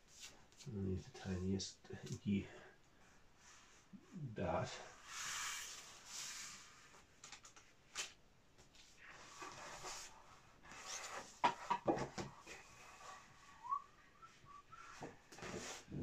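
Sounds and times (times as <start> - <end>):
soft rising whistle-like tone: 13.0 - 15.3.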